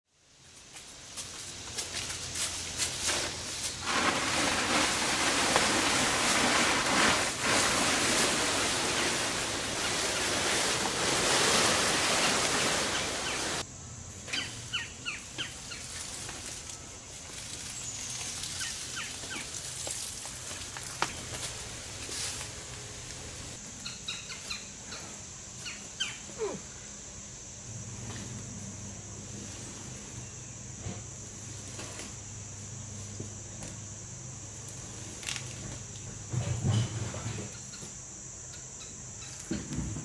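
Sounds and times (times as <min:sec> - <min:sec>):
plastic tarp rustling: 0:02.3 - 0:13.6.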